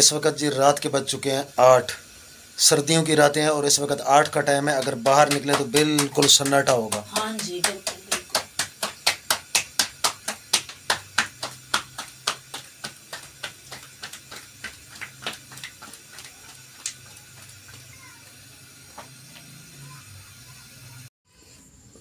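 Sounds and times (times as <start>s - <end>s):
hands slapping dough: 4.2s - 18.0s.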